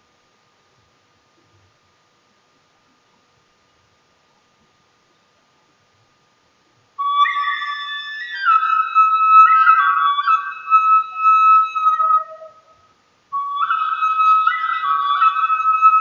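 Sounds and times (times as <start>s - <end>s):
flute-like melody: 7.0s - 16.0s.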